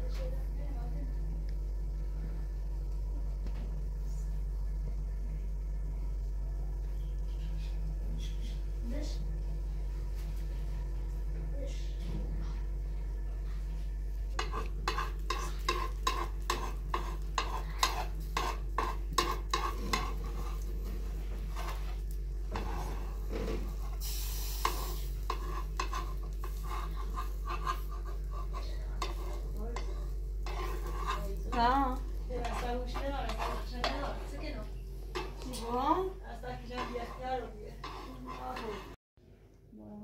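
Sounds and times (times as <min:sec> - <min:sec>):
batter sizzling: 0:12.5 - 0:39.0
spatula scraping metal frying pan: 0:14.4 - 0:35.7, 0:36.5 - 0:39.0.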